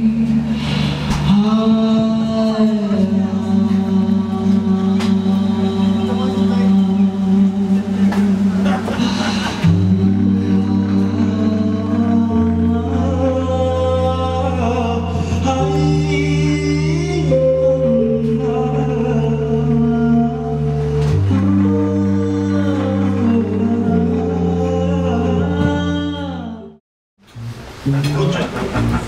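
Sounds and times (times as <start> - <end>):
person singing: 0.0 - 26.8
slow music with held chords: 0.0 - 26.8.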